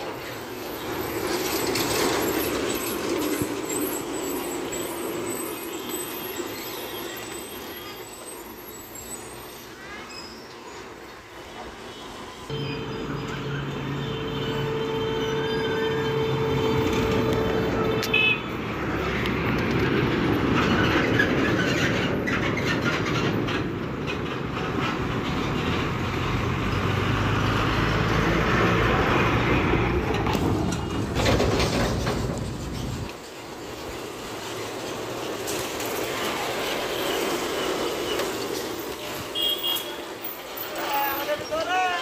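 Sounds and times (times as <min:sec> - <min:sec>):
diesel trucks passing: 0:00.0 - 0:09.6, 0:12.3 - 0:42.0
trailer knocks and clatter: 0:19.3 - 0:27.0, 0:28.1 - 0:33.4.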